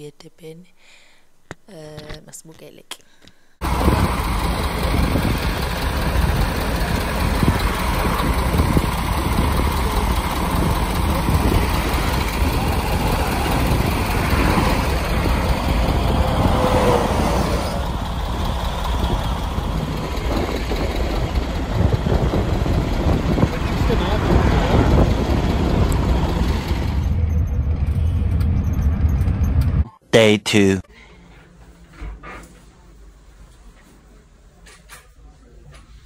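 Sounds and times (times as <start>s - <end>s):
vehicle engine and road noise: 3.6s - 30.0s.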